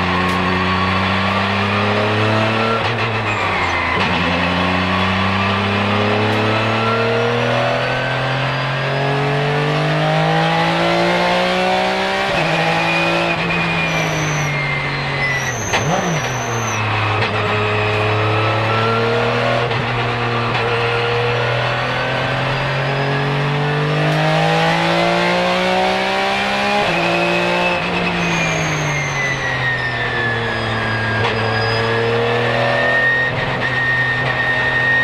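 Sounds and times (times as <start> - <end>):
race car engine revving: 0.0 - 35.0
brief high squeal: 2.6 - 4.2, 12.8 - 19.1, 27.3 - 35.0.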